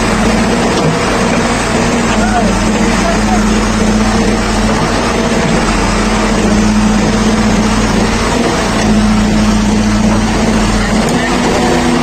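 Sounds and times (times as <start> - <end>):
diesel engine running steadily: 0.0 - 12.0.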